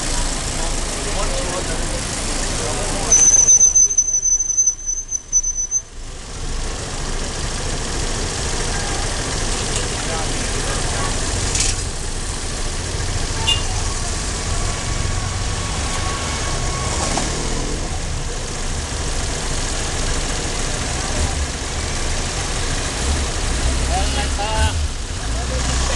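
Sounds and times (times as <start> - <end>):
scooter engine idling: 0.0 - 3.1, 5.9 - 14.1.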